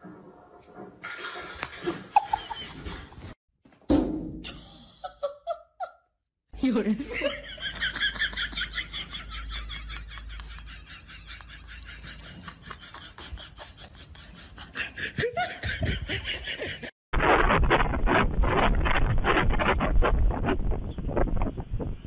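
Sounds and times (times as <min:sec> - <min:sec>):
person laughing: 0:02.1 - 0:02.9, 0:07.0 - 0:16.9.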